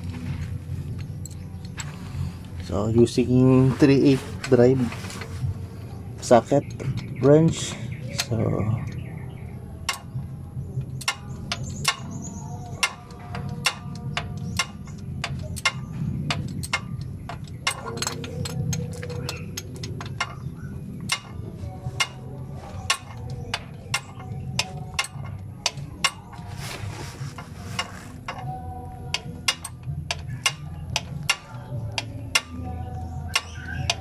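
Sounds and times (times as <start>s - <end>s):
socket ratchet clicking: 9.9s - 10.1s, 10.8s - 26.5s, 27.4s - 34.0s.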